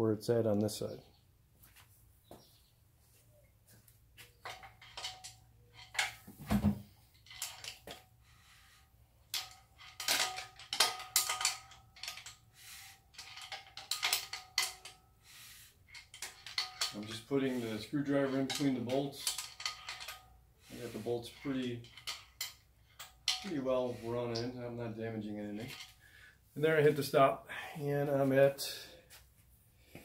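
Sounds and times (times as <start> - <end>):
screwdriver clinking on metal bolts: 4.4 - 6.3, 7.2 - 8.0, 9.3 - 12.5, 13.1 - 15.0, 15.9 - 24.4.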